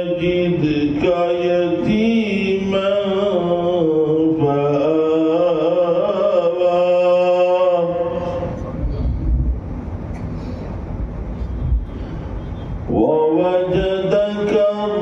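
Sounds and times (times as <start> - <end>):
man chanting recitation: 0.0 - 8.9, 12.9 - 15.0.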